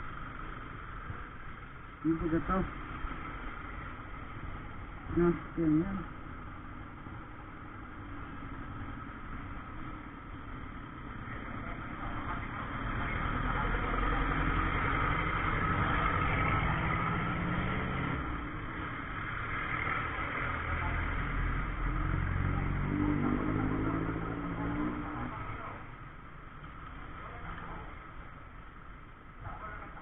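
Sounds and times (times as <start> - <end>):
vehicle engines running: 0.0 - 30.0.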